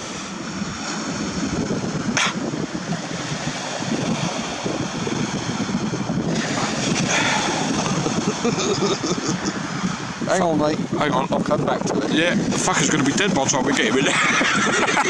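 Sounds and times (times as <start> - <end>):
surf rushing: 0.0 - 15.0
wind on microphone: 0.0 - 15.0.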